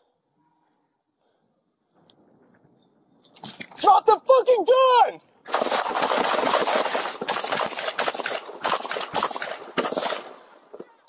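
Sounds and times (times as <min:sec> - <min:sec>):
rapid gunfire: 0:05.5 - 0:10.6.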